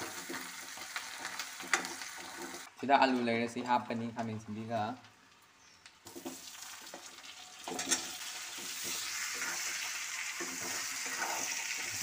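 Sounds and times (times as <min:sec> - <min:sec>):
metal spoon stirring in pan: 0:00.0 - 0:02.7, 0:06.1 - 0:12.0
potatoes sizzling in oil: 0:00.0 - 0:02.8, 0:06.0 - 0:12.0.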